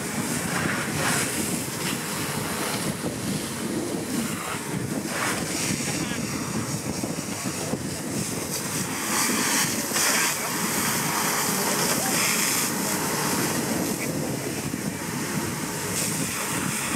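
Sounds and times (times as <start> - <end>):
fire hose water jet hissing: 0.0 - 16.9.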